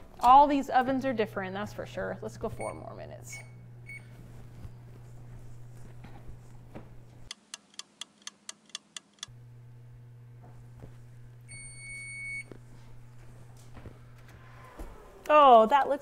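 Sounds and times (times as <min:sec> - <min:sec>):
low steady hum: 0:00.0 - 0:07.3, 0:09.2 - 0:16.0
oven timer long beep: 0:02.6 - 0:04.2, 0:11.5 - 0:12.6.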